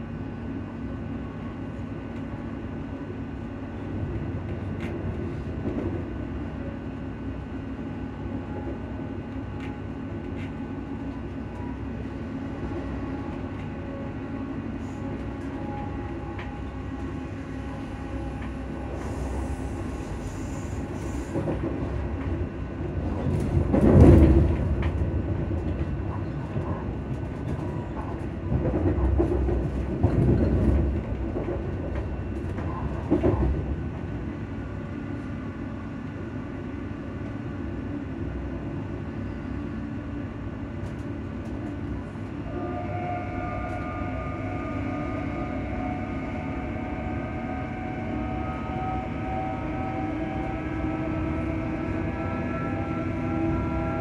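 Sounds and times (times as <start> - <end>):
train wheels rumbling on rails: 0.0 - 54.0
traction fans humming: 42.1 - 54.0.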